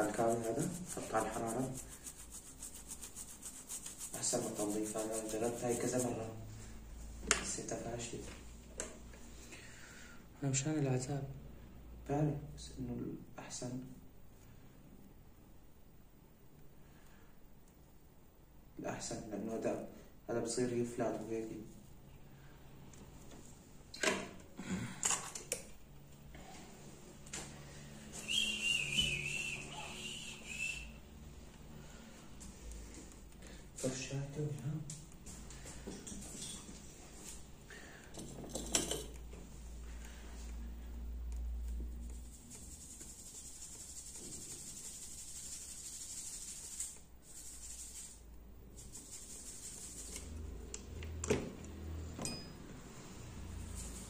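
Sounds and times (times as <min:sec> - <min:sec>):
high wavering whistle: 0:28.2 - 0:31.1.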